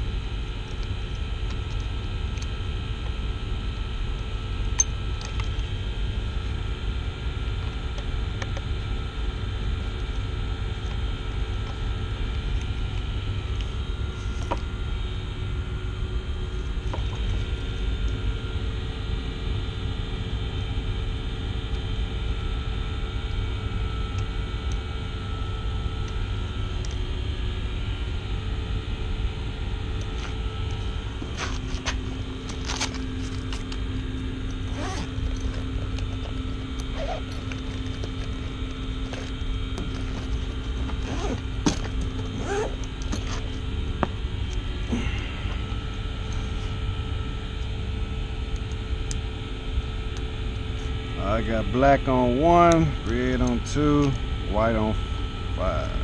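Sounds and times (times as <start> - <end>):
machinery droning: 0.0 - 56.0.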